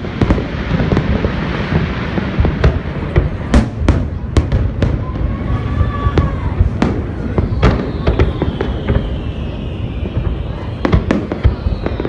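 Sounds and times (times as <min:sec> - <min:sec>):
low rumble of distant explosions: 0:00.0 - 0:12.0
steady whistling tone: 0:05.8 - 0:12.0.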